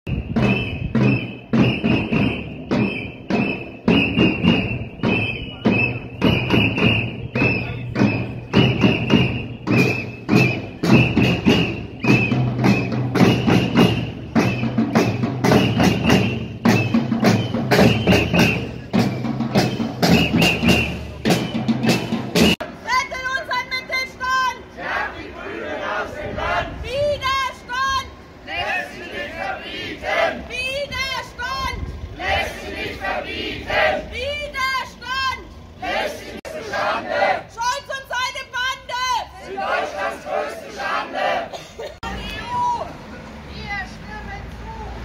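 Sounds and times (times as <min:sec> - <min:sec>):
marching drums: 0:00.1 - 0:24.0.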